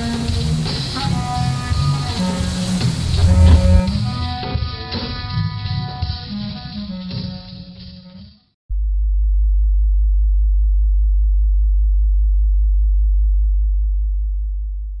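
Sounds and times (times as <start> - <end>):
deep electronic hum: 2.8 - 4.2, 8.7 - 15.0
faint fast flutter: 2.8 - 4.2.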